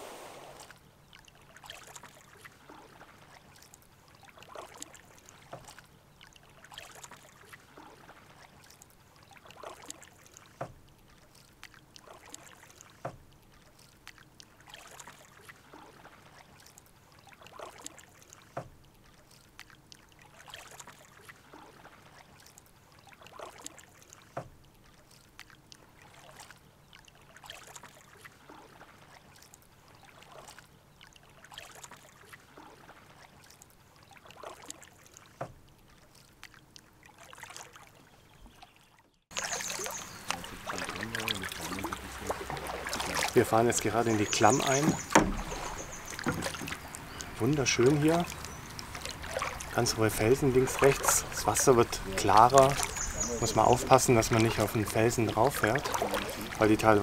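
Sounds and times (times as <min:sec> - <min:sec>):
canoe paddle splashing: 0:00.0 - 0:57.0
water dripping: 0:39.3 - 0:57.0.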